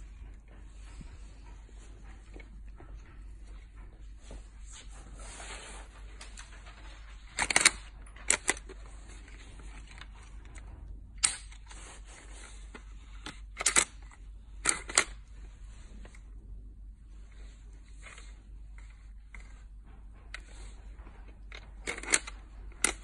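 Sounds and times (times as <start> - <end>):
airsoft rifle mechanism clicking: 13.2 - 15.2.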